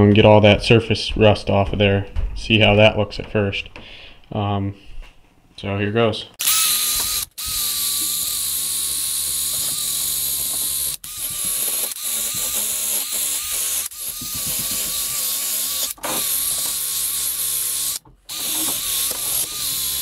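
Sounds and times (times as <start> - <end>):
electric drill motor whine: 6.4 - 20.0.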